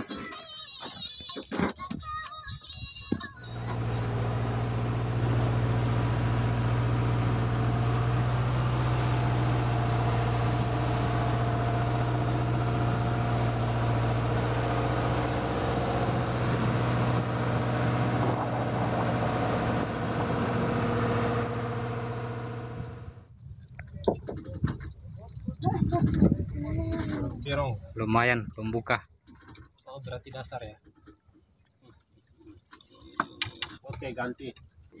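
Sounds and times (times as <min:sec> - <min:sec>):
boat engine droning: 0:03.4 - 0:23.2.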